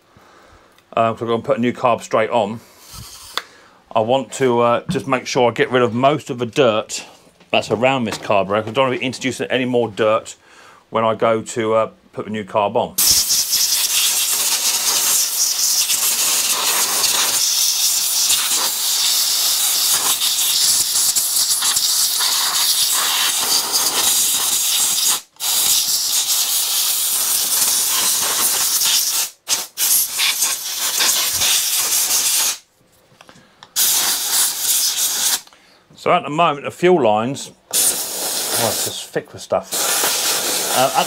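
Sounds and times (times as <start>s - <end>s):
air blow gun hissing: 2.6s - 3.4s, 13.0s - 32.7s, 33.7s - 35.5s, 37.7s - 41.0s.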